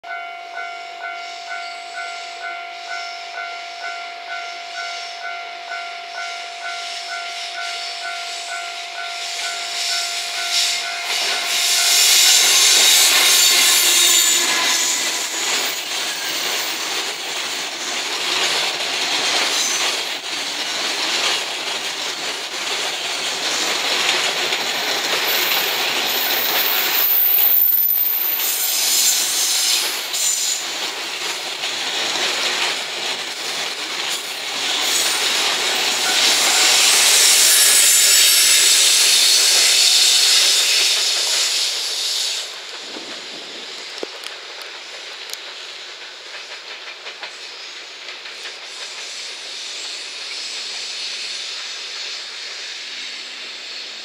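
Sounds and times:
freight train rolling past: 0.0s - 54.0s
wheels squealing on rails: 0.1s - 54.0s
locomotive passing: 6.5s - 51.0s
wheels clattering over rail joints: 11.1s - 41.8s.

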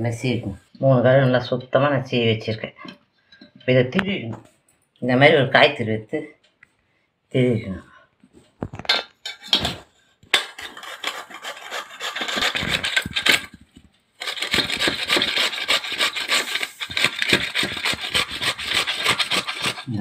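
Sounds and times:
cassava grated on metal grater: 10.4s - 13.6s, 14.2s - 20.0s.

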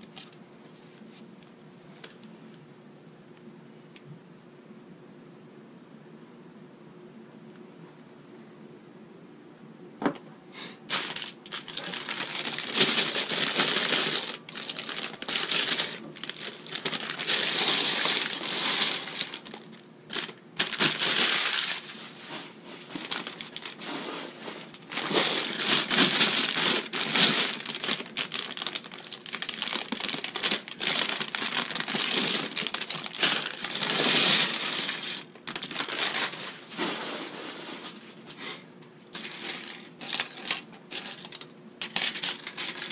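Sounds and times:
plastic bricks clattering on wood: 10.9s - 21.8s, 23.0s - 37.2s, 39.1s - 42.9s
plastic bag crinkling: 10.9s - 38.3s, 39.1s - 42.9s.

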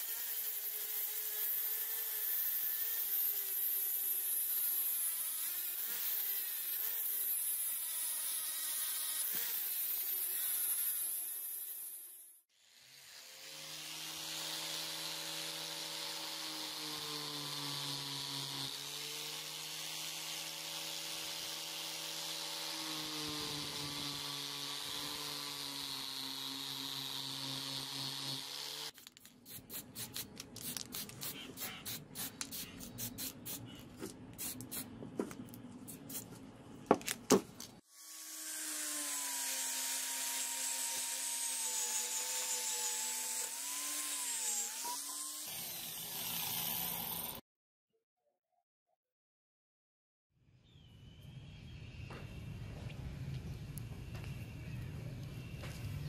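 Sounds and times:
angle grinder whining: 0.0s - 29.0s, 37.9s - 47.4s.

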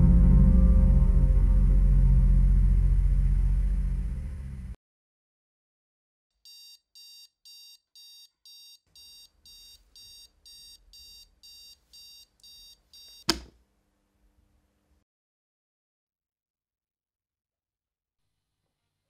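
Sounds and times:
alarm clock beeping: 6.5s - 13.3s
thump on alarm clock: 13.0s - 13.5s.

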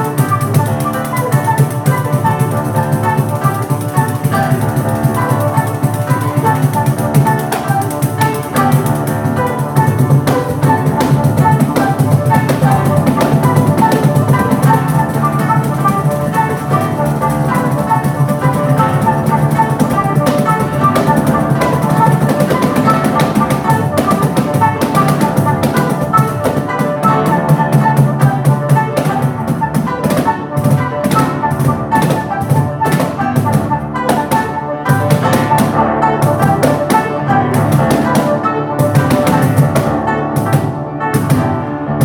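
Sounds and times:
acoustic guitar: 0.0s - 42.0s
flute melody: 0.0s - 42.0s
jingled frame drum rhythm: 0.0s - 42.0s.

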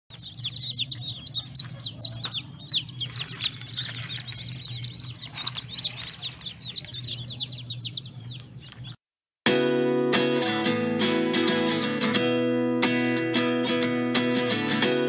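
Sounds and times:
chicks peeping: 0.1s - 9.0s.

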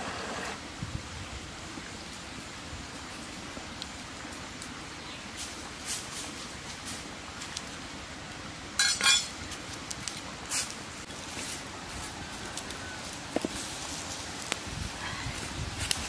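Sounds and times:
stream running: 0.0s - 16.0s
dish clinking on stone: 8.8s - 9.4s.

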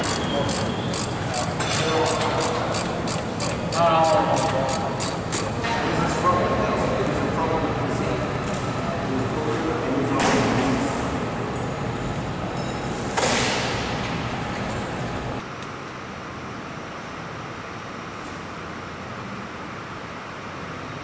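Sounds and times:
hangar background noise: 0.0s - 16.2s.

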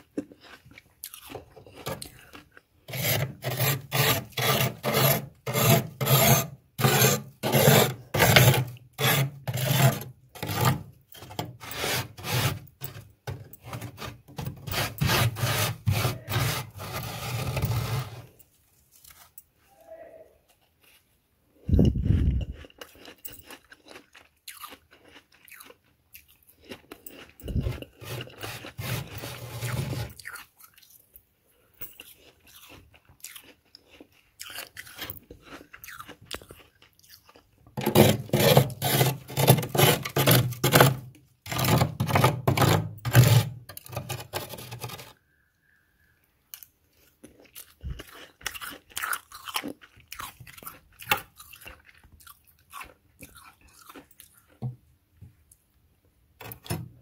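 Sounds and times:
chewing crunchy frost: 0.0s - 19.4s, 20.4s - 42.4s, 46.5s - 54.9s
metal spoon scraping frost: 1.7s - 19.4s, 27.0s - 30.5s, 37.8s - 45.2s.

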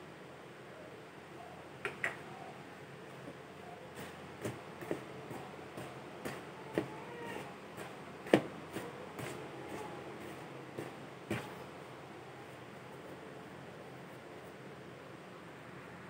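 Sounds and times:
fingers rubbing dough: 3.9s - 11.7s.

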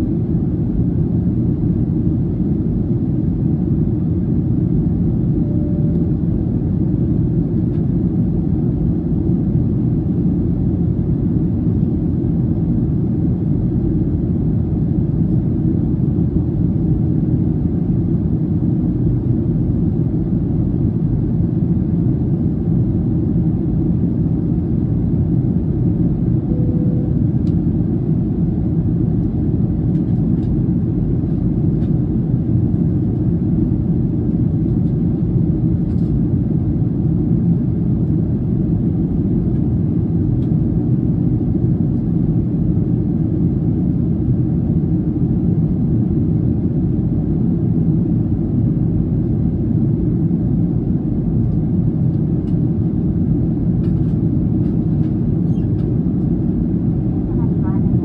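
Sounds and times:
airplane cabin engine rumble: 0.0s - 58.0s.

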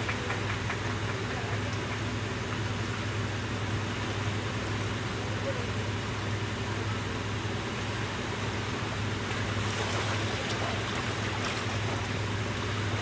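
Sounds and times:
waves washing over rocks: 9.4s - 13.0s.

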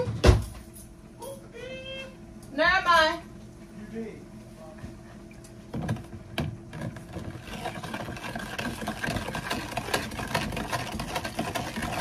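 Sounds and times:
utensil scraping plastic container: 6.8s - 12.0s.

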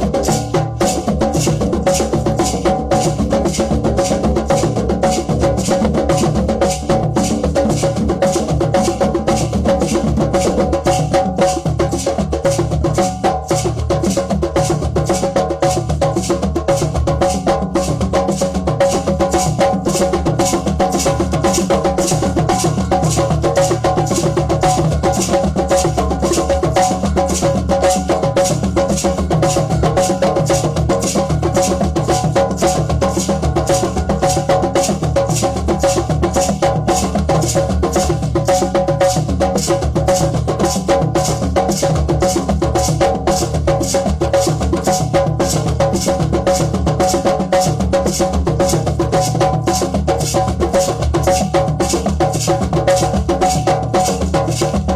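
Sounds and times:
hand drums playing fast rhythm: 0.0s - 54.9s.

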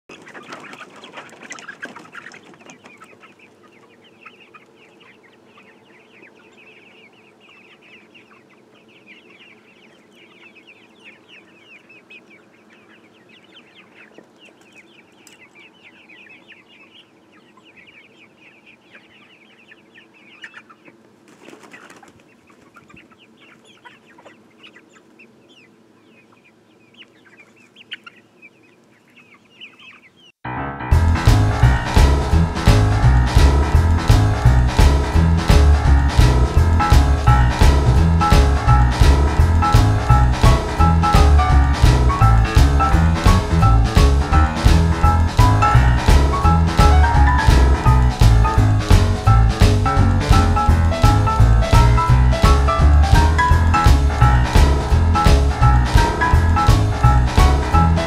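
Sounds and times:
hens clucking: 0.0s - 30.4s, 31.0s - 58.0s
rustle: 0.1s - 30.3s.

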